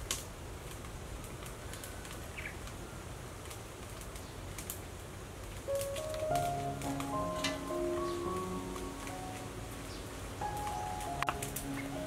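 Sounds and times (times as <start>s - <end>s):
steady low hiss: 0.0s - 12.0s
bird chirp: 2.3s - 3.0s, 6.8s - 12.0s.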